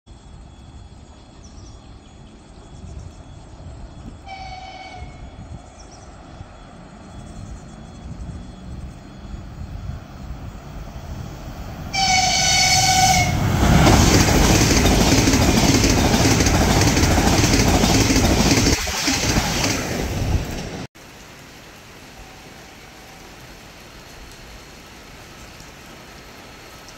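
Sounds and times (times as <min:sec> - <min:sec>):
train horn blast: 0:04.2 - 0:05.5, 0:11.9 - 0:13.8
wheels clattering over rails: 0:13.4 - 0:20.9.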